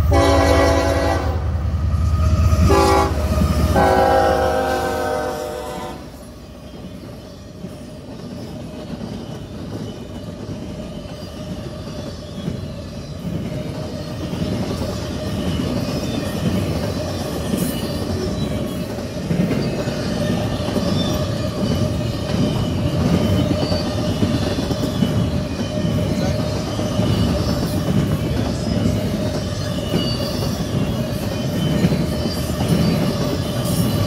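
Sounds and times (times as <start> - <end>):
train wheels rumbling on rails: 0.0 - 34.0.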